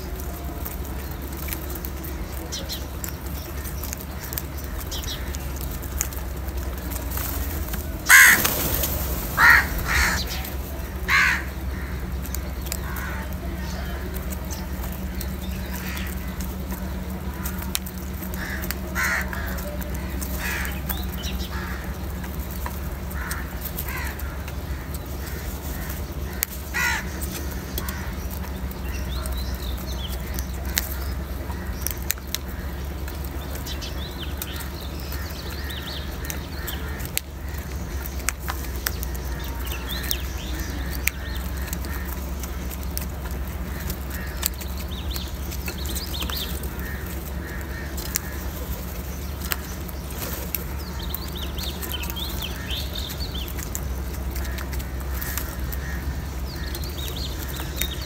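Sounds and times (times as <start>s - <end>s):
steady low rumble: 0.0s - 58.0s
crows cawing: 6.9s - 29.5s, 30.2s - 58.0s
sharp clicks: 11.5s - 58.0s.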